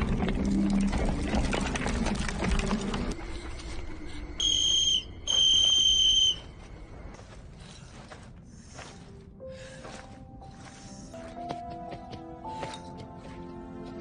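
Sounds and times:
whistle blasts: 0:04.4 - 0:06.6.

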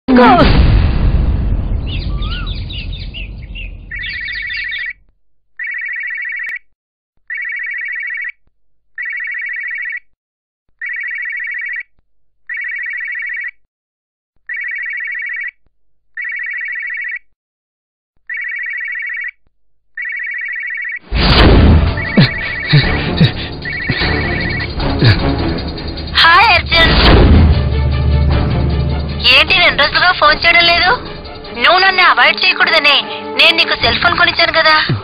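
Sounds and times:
electronic telephone ring: 0:05.6 - 0:06.6, 0:07.3 - 0:08.4, 0:09.0 - 0:10.0, 0:10.8 - 0:11.9, 0:12.5 - 0:13.6, 0:14.5 - 0:15.6, 0:16.2 - 0:17.3, 0:18.3 - 0:19.4, 0:20.0 - 0:21.0
loud noise: 0:21.1 - 0:29.8.

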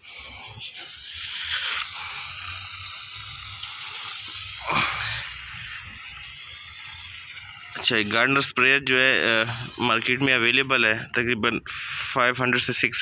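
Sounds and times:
pressure sprayer hissing: 0:00.0 - 0:08.3, 0:09.1 - 0:10.8.

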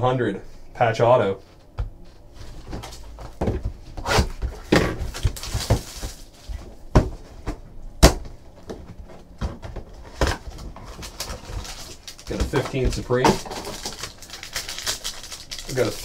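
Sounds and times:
wrapper crinkling: 0:05.0 - 0:06.6, 0:10.3 - 0:16.0.

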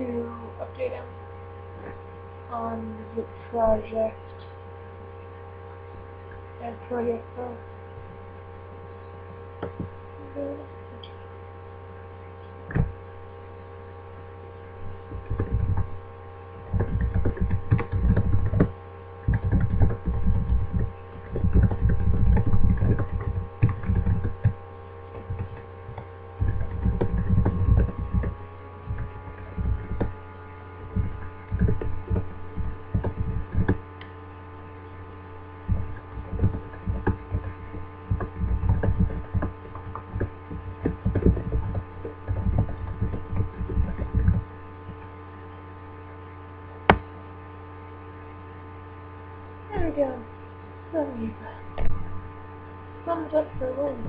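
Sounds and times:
electrical hum: 0:00.0 - 0:54.0
keyboard typing taps: 0:38.1 - 0:45.0.

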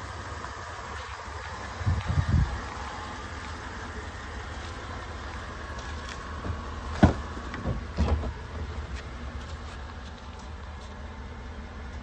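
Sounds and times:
car door clunks: 0:05.8 - 0:08.7.

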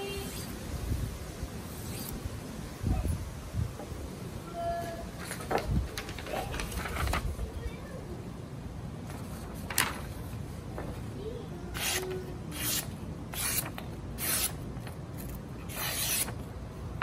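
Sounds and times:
knife slicing paper: 0:11.7 - 0:14.6, 0:15.2 - 0:16.5.

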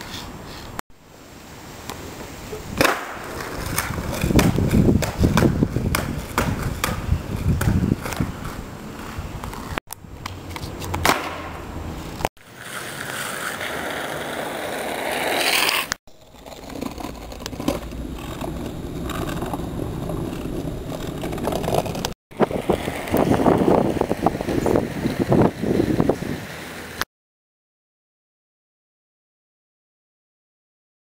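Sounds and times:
skateboard wheels rolling on concrete: 0:00.0 - 0:27.1
skateboard knocks and scrapes: 0:02.5 - 0:25.3.

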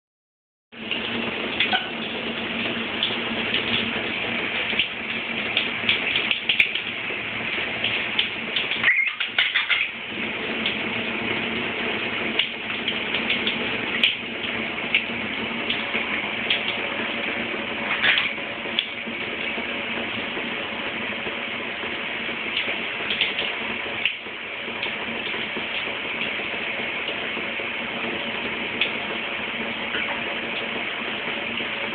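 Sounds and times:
parrot chirps: 0:08.8 - 0:10.0.

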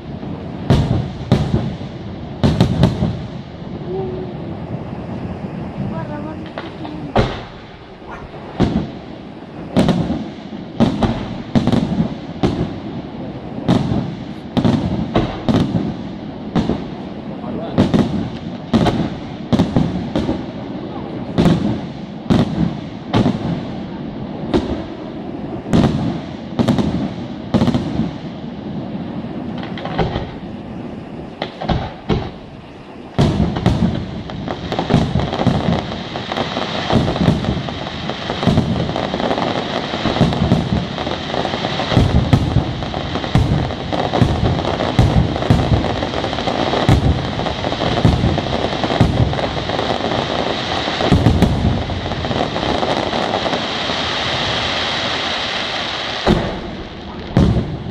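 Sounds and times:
firework shells bursting: 0:05.3 - 0:12.7, 0:29.5 - 0:57.9.

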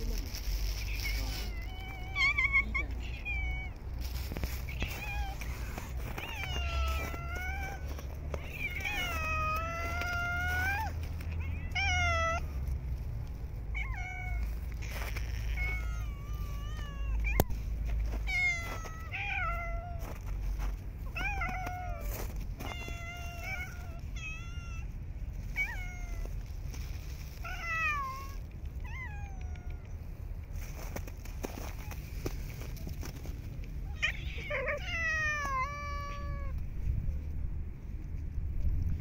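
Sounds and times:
cat meowing: 0:00.8 - 0:12.6, 0:13.7 - 0:20.0, 0:21.1 - 0:24.9, 0:25.5 - 0:26.4, 0:27.4 - 0:30.1, 0:33.8 - 0:36.6.

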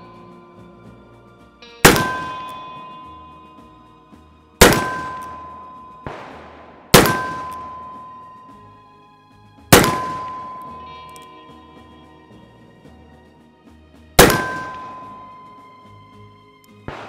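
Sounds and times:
revolver shots: 0:01.8 - 0:02.9, 0:04.6 - 0:08.0, 0:09.7 - 0:11.2, 0:14.2 - 0:15.3
steel target clanging: 0:01.8 - 0:03.9, 0:04.6 - 0:08.7, 0:09.7 - 0:11.9, 0:14.2 - 0:15.8.

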